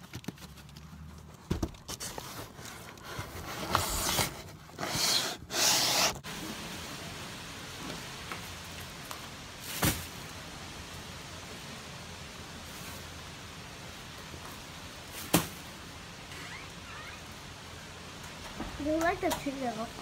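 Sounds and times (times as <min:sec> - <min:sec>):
cardboard boxes scraping: 0:01.8 - 0:06.2
steady background hiss: 0:03.4 - 0:20.0.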